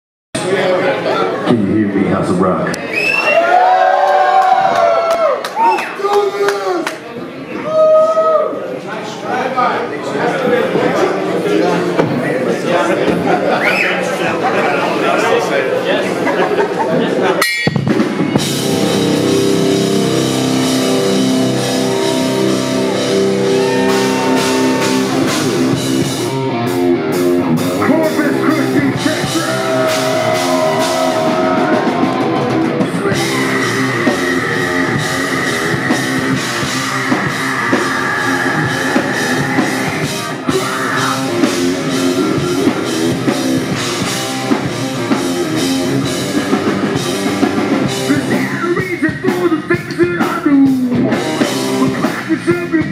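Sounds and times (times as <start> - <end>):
bass guitar: 17.4 - 52.9
distorted electric guitars: 17.4 - 52.9
drum kit: 17.4 - 52.9.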